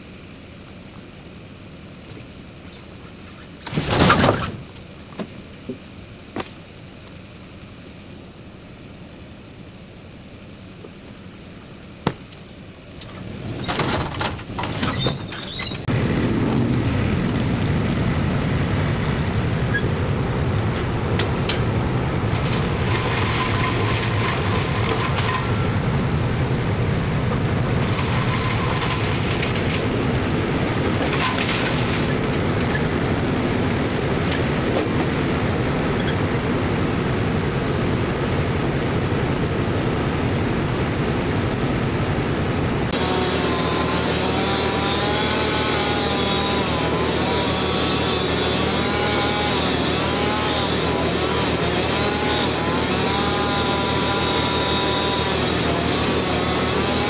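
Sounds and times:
tractor engine running: 0.0 - 57.0
knocks and rustling: 12.0 - 15.9.

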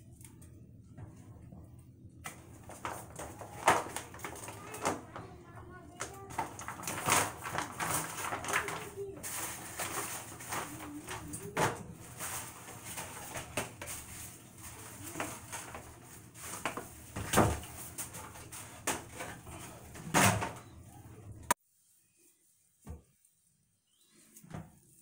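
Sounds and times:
plastic package crinkling: 2.4 - 18.6.

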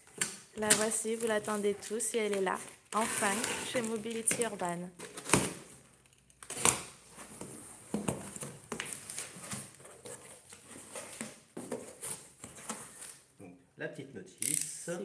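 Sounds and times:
cardboard flaps rustling and scraping: 7.1 - 13.2.

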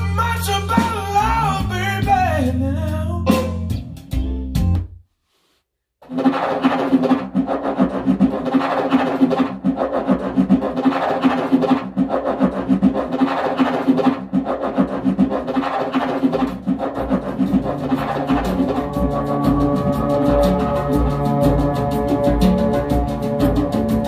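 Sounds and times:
plucked string instrument: 17.0 - 24.0
steady low drone: 17.0 - 24.0.

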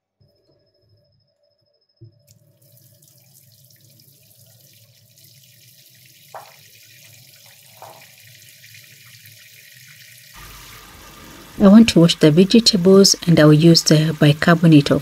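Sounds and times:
tap water running into sink: 2.3 - 15.0.

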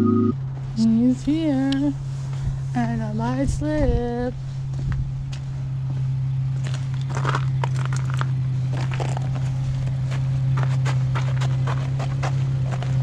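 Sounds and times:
car engine idling: 4.3 - 13.0
footsteps on snow and ice: 4.7 - 13.0.

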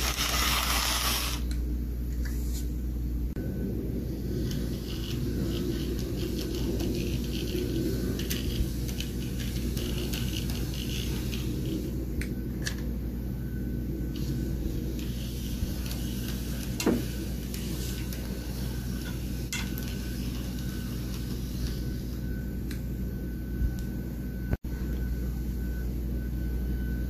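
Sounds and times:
model train motor hum: 0.0 - 1.4, 4.4 - 11.7.

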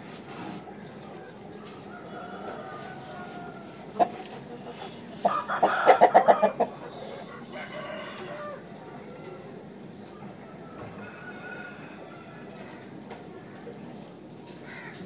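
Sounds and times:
rooster crowing: 1.6 - 3.9, 5.2 - 9.7, 10.4 - 12.9.

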